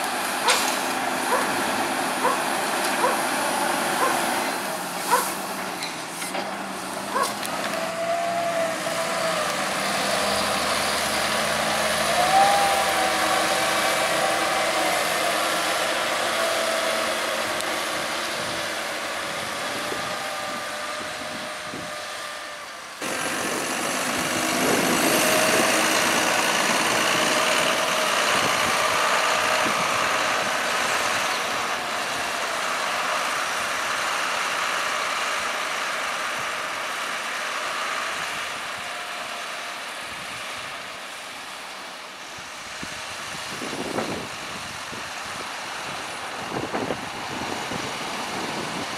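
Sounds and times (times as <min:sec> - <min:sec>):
wheel loader engine revving: 0:00.0 - 0:44.4
tractors running: 0:00.0 - 0:48.9.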